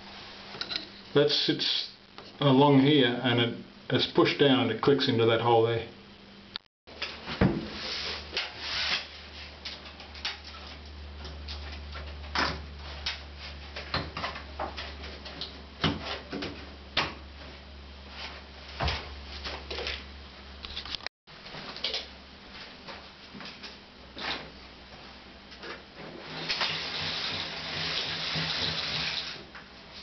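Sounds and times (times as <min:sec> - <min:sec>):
steady low hum: 0:00.0 - 0:20.7.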